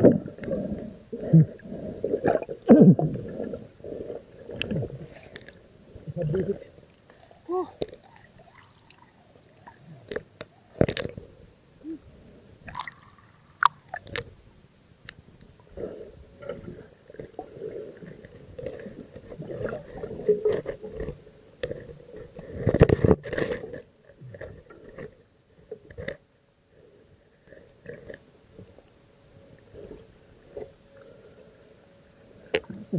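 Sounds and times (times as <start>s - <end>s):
underwater water moving: 0.0s - 31.7s.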